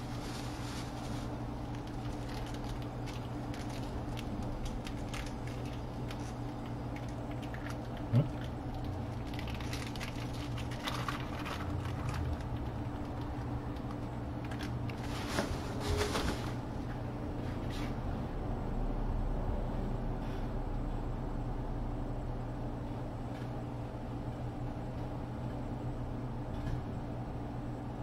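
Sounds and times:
paper towel rustling: 0.0s - 2.6s, 14.9s - 16.7s
steady low hum: 0.0s - 28.0s.

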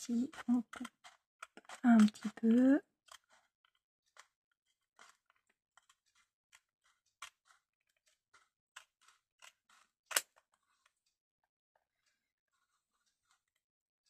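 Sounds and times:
scissors snipping paper: 0.0s - 10.9s.

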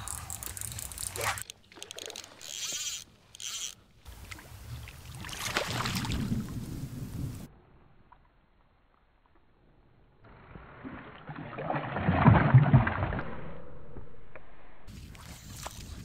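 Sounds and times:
water sloshing and splashing: 0.3s - 6.7s, 10.8s - 13.3s.

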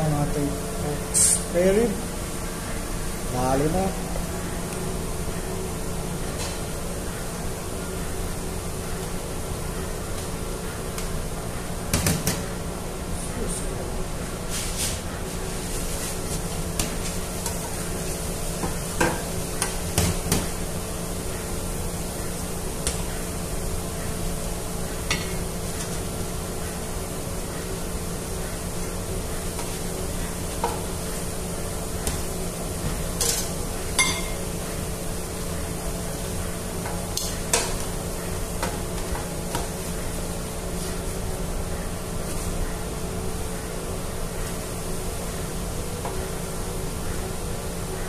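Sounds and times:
kitchen hum: 0.0s - 48.0s.

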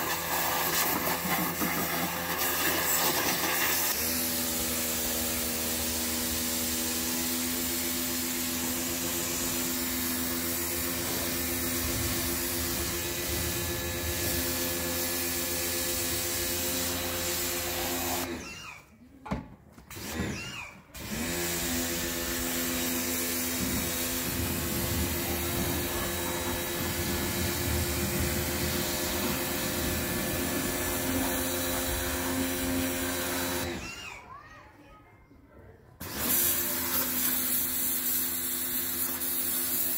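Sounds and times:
water spray hissing: 0.0s - 4.0s, 36.3s - 39.9s
pressure washer motor humming: 0.0s - 18.4s, 21.0s - 34.0s, 36.0s - 39.9s.

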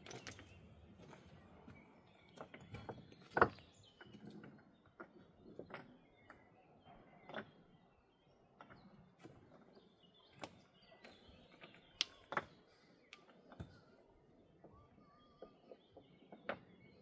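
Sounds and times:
stones knocking together: 0.0s - 1.3s.

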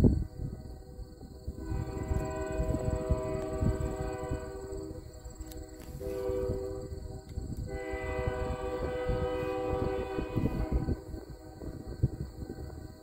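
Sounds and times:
train horn chime: 1.5s - 11.8s.

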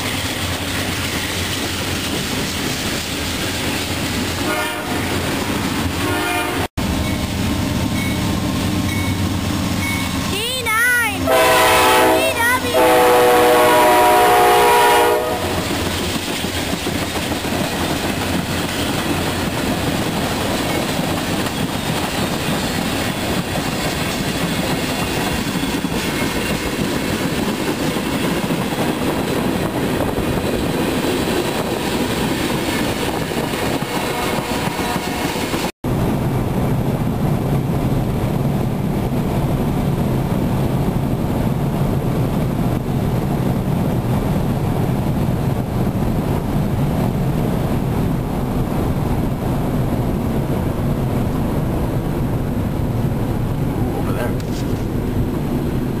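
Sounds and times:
train wheels clattering on rail: 0.0s - 6.2s, 15.4s - 51.2s, 54.4s - 56.0s
locomotive air horn blasts: 4.4s - 5.2s, 6.0s - 6.7s, 11.2s - 15.6s, 34.0s - 35.4s.

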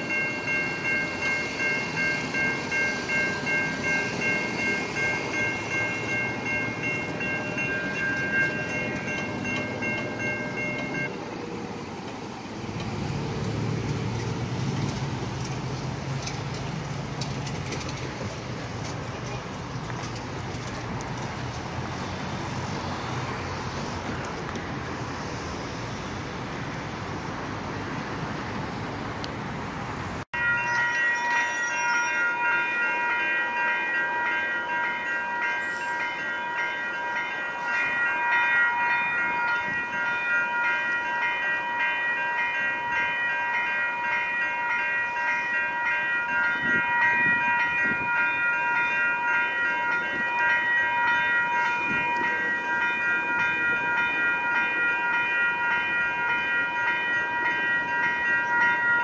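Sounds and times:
level crossing bell ringing: 0.0s - 11.3s, 30.4s - 59.0s.

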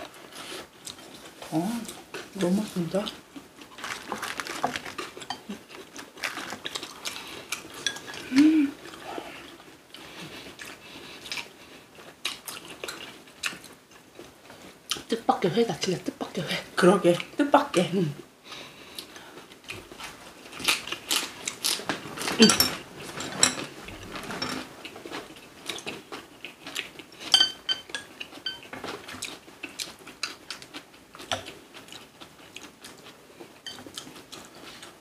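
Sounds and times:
chewing: 3.0s - 15.1s, 18.8s - 35.0s
cutlery clinking against dishes: 7.8s - 8.2s, 22.3s - 23.7s, 27.3s - 28.8s, 33.6s - 34.0s.

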